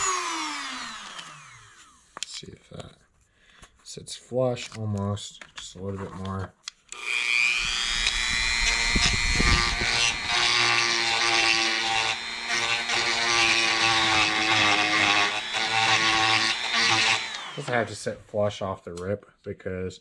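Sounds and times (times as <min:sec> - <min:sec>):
rotary tool grinding plastic: 0:00.0 - 0:02.4, 0:05.7 - 0:17.9.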